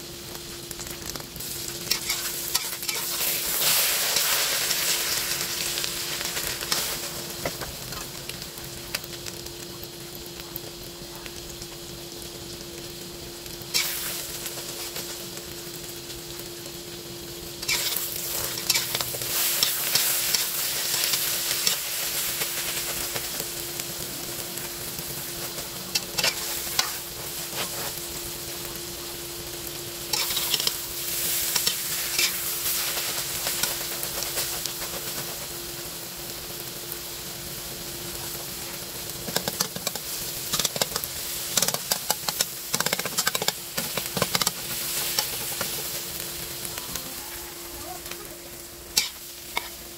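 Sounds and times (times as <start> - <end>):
egg sizzling in oil: 0.0 - 49.9
steady hum: 0.0 - 49.9
metal spatula scraping wok: 1.8 - 4.3.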